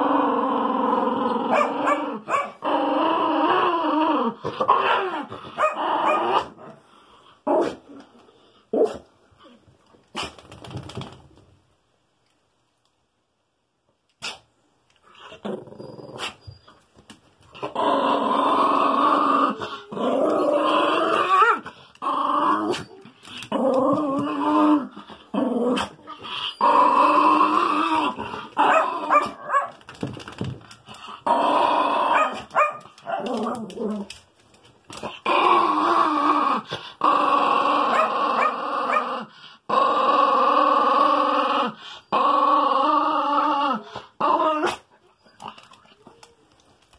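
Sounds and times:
dog howling: 31.6s - 33.8s.

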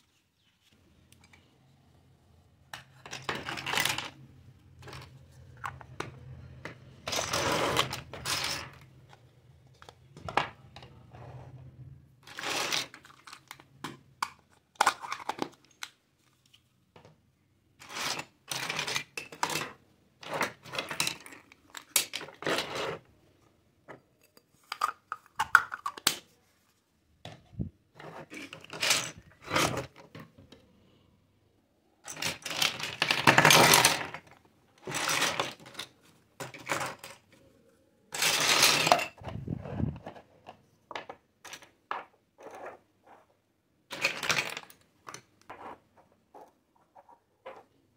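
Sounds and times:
plastic toys clattering: 2.7s - 11.0s, 12.2s - 16.0s, 17.8s - 23.0s, 24.5s - 26.3s, 27.2s - 30.6s, 32.0s - 37.5s, 38.1s - 43.2s, 43.9s - 47.8s
basket of plastic toys rattling: 32.1s - 37.3s.

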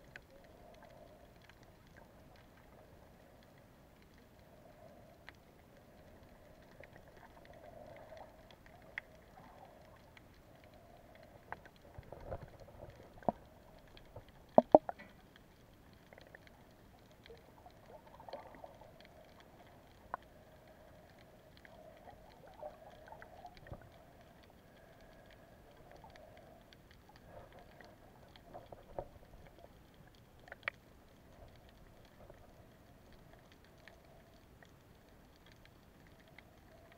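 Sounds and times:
underwater clicks and knocks: 11.5s - 15.2s.

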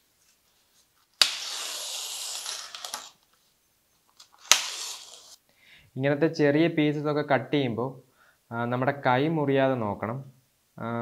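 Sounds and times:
utility knife cutting foam: 1.2s - 3.2s, 4.4s - 5.4s.

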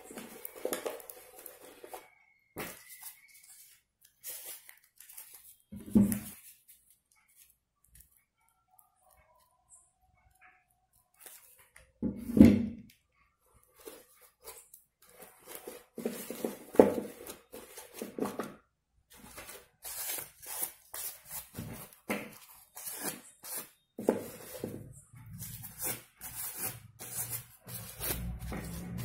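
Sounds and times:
corn husks rustling and crinkling: 0.0s - 7.5s, 13.8s - 18.5s.

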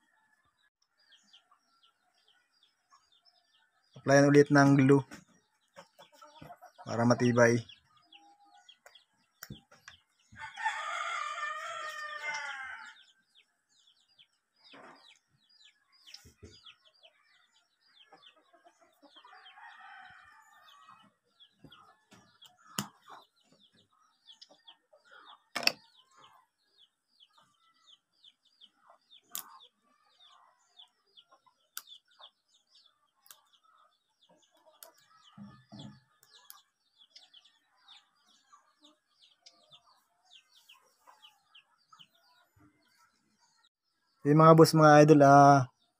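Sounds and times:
small birds chirping: 0.0s - 45.9s
rooster crowing: 10.4s - 13.0s.

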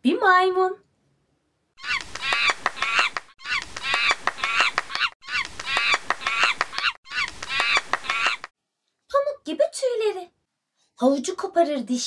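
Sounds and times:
monkey chattering calls: 1.8s - 8.5s.

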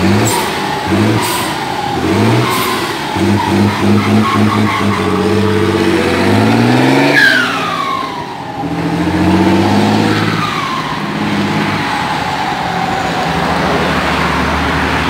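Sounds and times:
diesel truck engine revving: 0.0s - 15.0s
falling turbo whistle: 7.0s - 8.3s.

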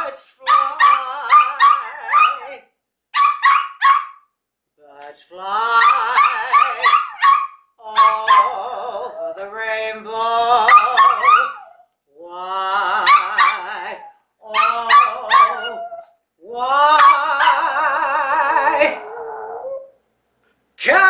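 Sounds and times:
woman singing with vibrato: 0.0s - 2.6s, 5.0s - 6.9s, 7.8s - 11.5s, 12.2s - 19.1s
dog howling: 0.6s - 2.6s, 8.0s - 9.5s, 10.6s - 11.8s, 12.9s - 20.0s.

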